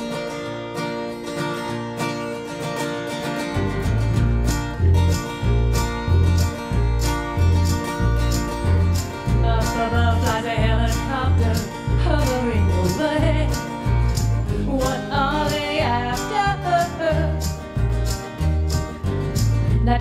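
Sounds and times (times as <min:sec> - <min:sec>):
strummed acoustic guitar: 0:00.0 - 0:20.0
plucked upright bass: 0:03.5 - 0:20.0
woman singing: 0:09.2 - 0:13.8, 0:14.4 - 0:17.6, 0:19.7 - 0:20.0.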